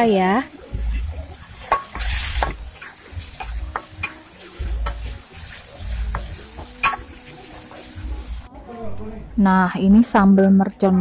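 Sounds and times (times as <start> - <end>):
paste sizzling in oil: 0.0 - 8.5
spatula clinking against wok: 1.6 - 7.9
metal spatula scraping a wok: 1.6 - 8.0.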